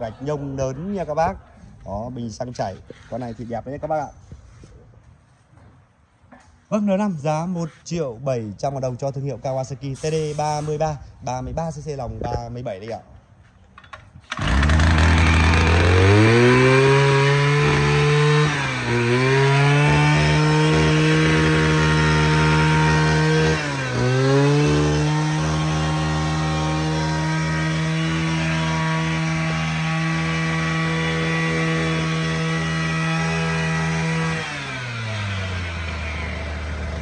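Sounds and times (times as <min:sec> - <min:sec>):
two-stroke engine revving: 0:14.3 - 0:37.0.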